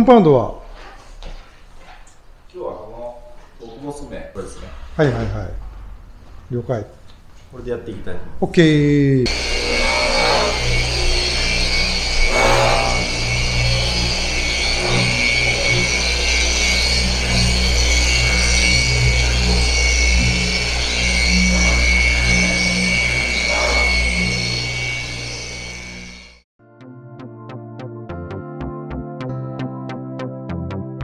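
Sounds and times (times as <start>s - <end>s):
electric car polisher whining: 9.3s - 26.4s.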